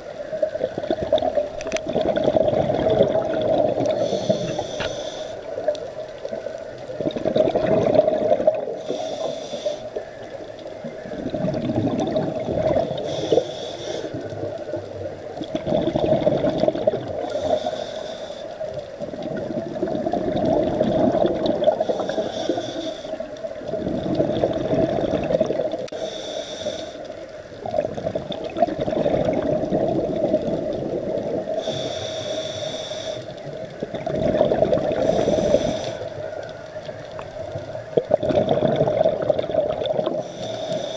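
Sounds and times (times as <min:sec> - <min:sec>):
exhaled bubbles rushing: 0:00.4 - 0:04.5, 0:05.6 - 0:08.8, 0:11.1 - 0:13.0, 0:14.3 - 0:17.4, 0:19.0 - 0:22.2, 0:23.6 - 0:25.9, 0:27.6 - 0:31.6, 0:33.8 - 0:36.3, 0:37.1 - 0:40.3
regulator inhale hiss: 0:03.9 - 0:05.6, 0:08.7 - 0:10.2, 0:12.9 - 0:14.4, 0:17.2 - 0:18.8, 0:21.8 - 0:23.4, 0:25.9 - 0:27.2, 0:31.5 - 0:33.6, 0:35.0 - 0:36.4, 0:40.2 - 0:40.9.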